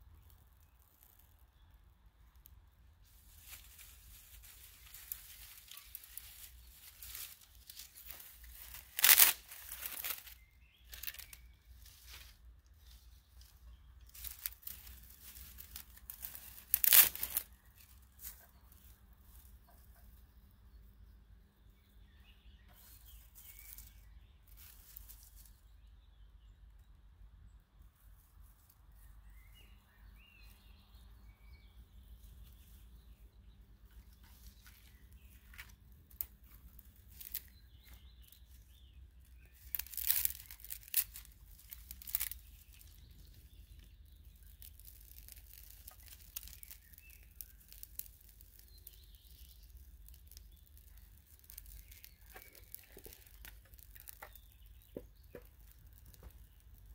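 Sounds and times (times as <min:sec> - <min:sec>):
faint birds chirping: 0:00.0 - 0:56.9
fire crackling and snapping: 0:00.1 - 0:01.8, 0:03.2 - 0:12.3, 0:13.4 - 0:18.4, 0:34.7 - 0:56.9.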